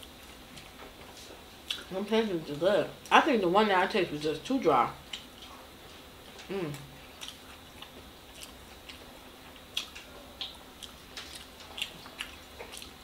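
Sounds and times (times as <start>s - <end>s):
wet chewing mouth clicks: 6.3s - 9.0s.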